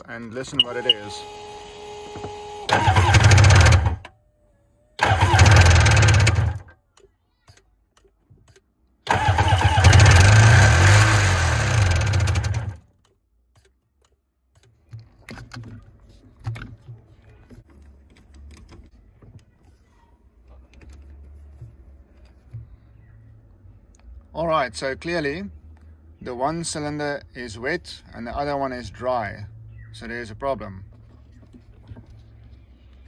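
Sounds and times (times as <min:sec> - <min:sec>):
two-stroke engine running: 0:00.6 - 0:04.1, 0:05.0 - 0:06.7, 0:09.1 - 0:12.9
hand tools clicking on engine: 0:05.0 - 0:16.7.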